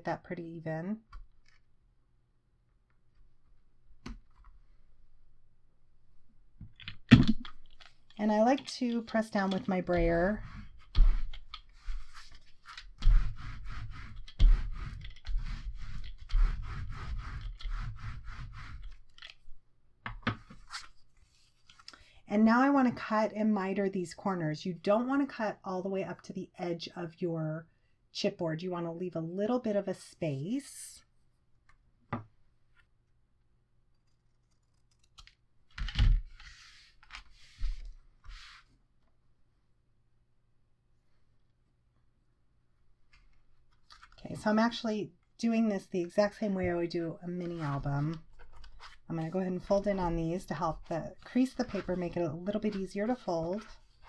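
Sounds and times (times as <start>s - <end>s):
brayer rolling and scraping on paper: 7.7s - 19.4s, 46.3s - 54.0s
paper and card rustling: 43.1s - 44.5s, 46.3s - 54.0s.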